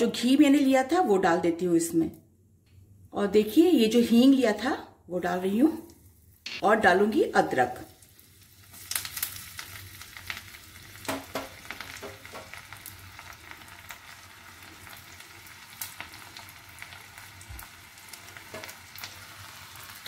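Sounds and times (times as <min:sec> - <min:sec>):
spices sizzling in hot fat: 0:03.5 - 0:20.0.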